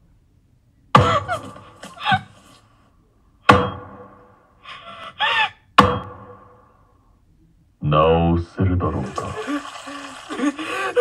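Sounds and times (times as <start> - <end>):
heavy booming thuds: 3.5 - 4.3
breathy rush: 9.3 - 11.0.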